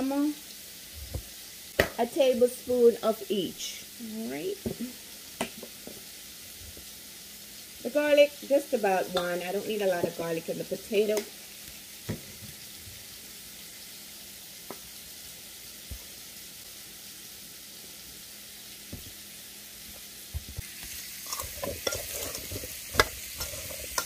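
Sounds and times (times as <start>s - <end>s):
shrimp sizzling in a skillet: 0.0s - 24.0s
potatoes tossed in metal bowl: 20.8s - 24.0s.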